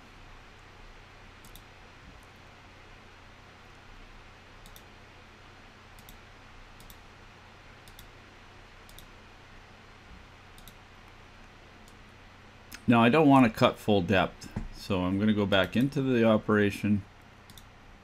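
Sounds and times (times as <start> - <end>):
faint hiss and low hum: 0.0 - 18.0
computer mouse clicking: 1.4 - 2.3, 4.6 - 4.9, 6.0 - 6.2, 6.8 - 7.0, 7.8 - 8.2, 8.8 - 9.1, 10.6 - 12.0, 17.5 - 17.7.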